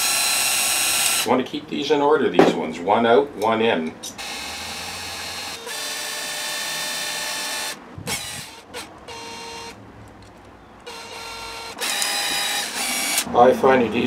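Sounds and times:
cordless drill whirring: 0.0s - 1.3s, 4.2s - 9.8s, 10.8s - 13.3s.

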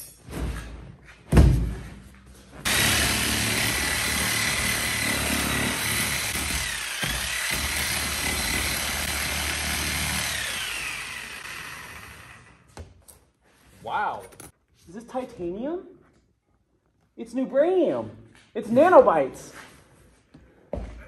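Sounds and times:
power cutting tool whining: 2.7s - 12.6s.

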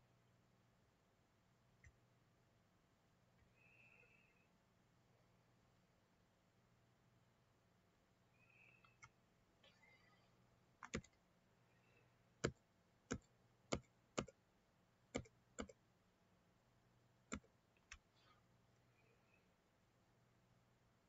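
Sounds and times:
computer mouse buttons clicking: 10.8s - 11.2s.

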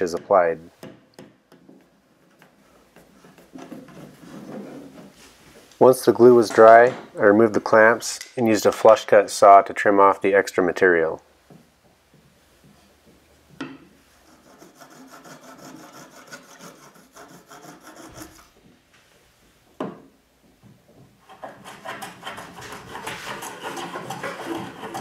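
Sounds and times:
hand plane cutting wood: 14.2s - 18.5s, 21.2s - 25.0s
saw rasping through wood: 14.2s - 18.5s, 21.3s - 25.0s.

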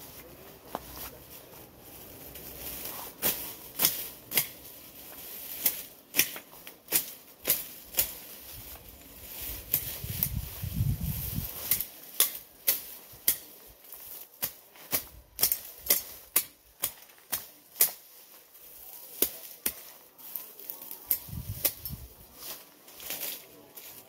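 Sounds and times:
machete slicing through grass: 2.8s - 4.7s, 5.3s - 18.3s, 19.1s - 20.0s, 21.1s - 23.4s.

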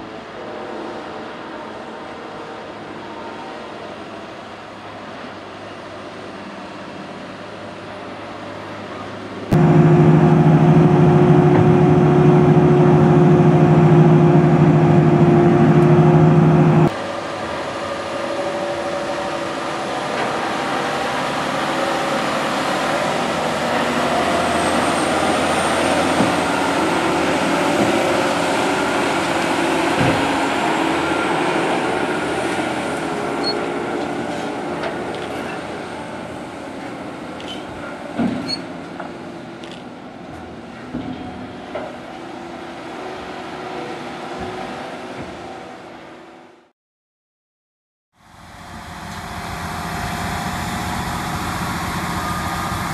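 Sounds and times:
loud steady droning: 9.5s - 33.3s
tractor and earthmoving machinery: 9.5s - 45.8s, 48.2s - 52.9s.

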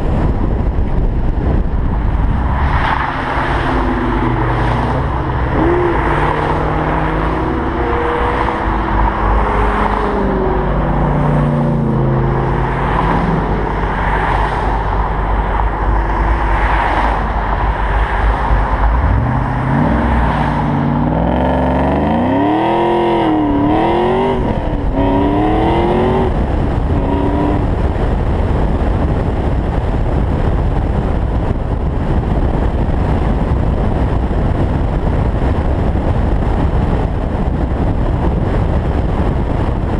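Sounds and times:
wind rush and road noise: 0.0s - 39.9s
car engine revving: 1.4s - 30.4s.

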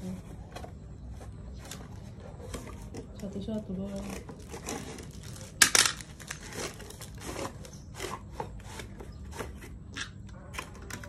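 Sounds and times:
cardboard box rustling: 0.0s - 9.7s
plastic wrap crinkling: 1.6s - 8.0s.

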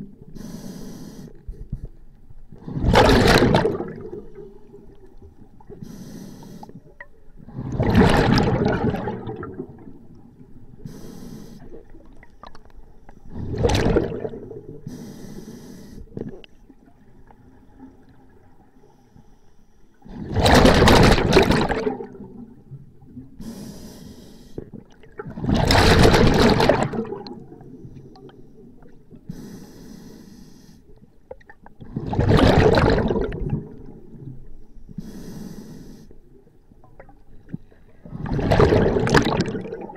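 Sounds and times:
exhaled bubbles rushing: 2.6s - 4.7s, 7.5s - 10.2s, 13.3s - 14.8s, 20.1s - 22.5s, 25.1s - 28.3s, 31.8s - 34.0s, 38.0s - 39.9s.

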